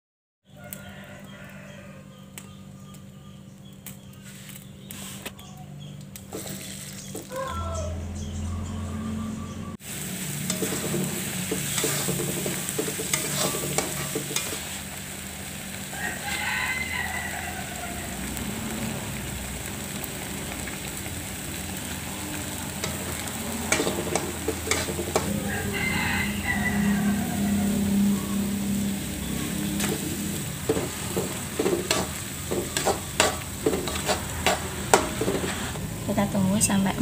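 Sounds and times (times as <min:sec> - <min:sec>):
paste sizzling in oil: 0:06.2 - 0:07.3, 0:09.8 - 0:35.9
spoon stirring in wok: 0:06.3 - 0:07.3, 0:10.4 - 0:14.8, 0:22.6 - 0:25.4, 0:29.3 - 0:35.8.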